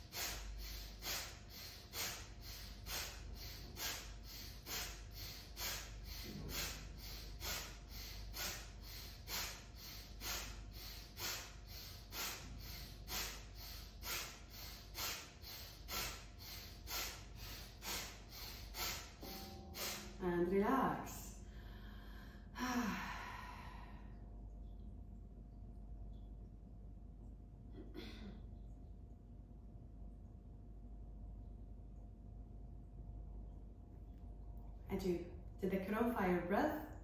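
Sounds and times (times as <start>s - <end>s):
woman breathing forcefully through nose: 0.0s - 20.2s.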